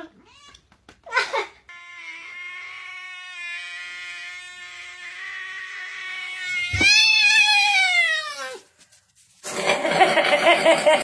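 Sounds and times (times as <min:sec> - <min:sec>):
cat yowling: 0:02.0 - 0:08.6.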